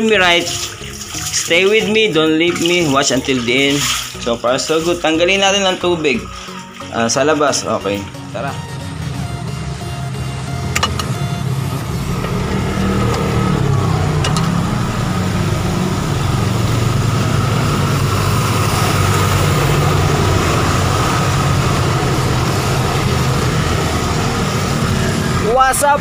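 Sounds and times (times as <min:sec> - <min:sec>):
low mechanical drone of machine: 0:08.7 - 0:25.5.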